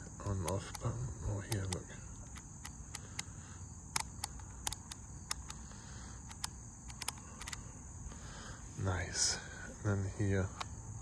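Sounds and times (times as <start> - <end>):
plastic clamp meter clicks: 0.0 - 3.3, 3.9 - 5.6, 6.2 - 7.6.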